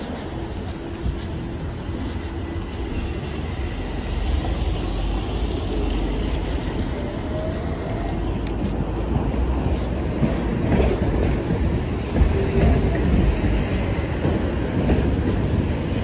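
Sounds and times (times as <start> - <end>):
cars passing with tyre hiss: 0.0 - 12.2
low traffic rumble: 0.0 - 16.0.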